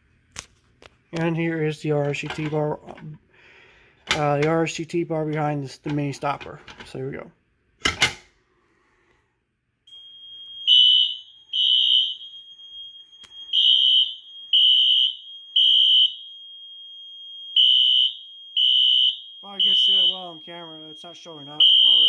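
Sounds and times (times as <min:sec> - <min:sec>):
fire alarm horn blasts: 0:09.9 - 0:22.0
thin steady high tone: 0:19.4 - 0:22.0.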